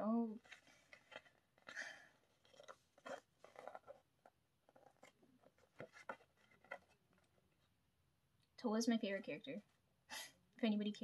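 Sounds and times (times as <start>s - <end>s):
paper pages turning: 0.4s - 7.4s.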